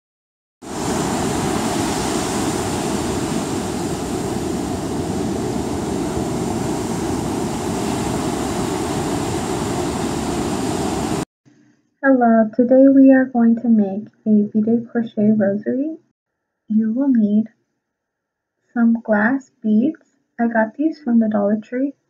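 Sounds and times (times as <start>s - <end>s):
ocean surf on beach: 0.6s - 11.3s.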